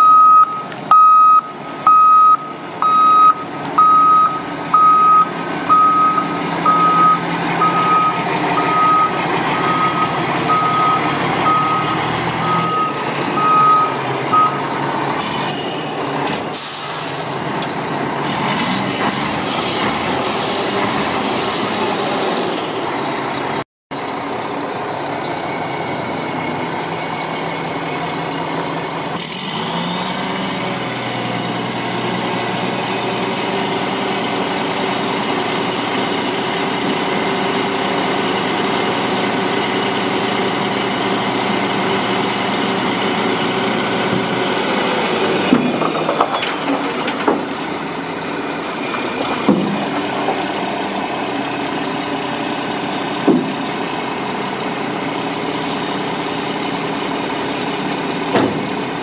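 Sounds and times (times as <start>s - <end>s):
backup alarm beeping: 0.0s - 14.6s
truck diesel engine running: 0.0s - 18.2s, 19.1s - 59.0s.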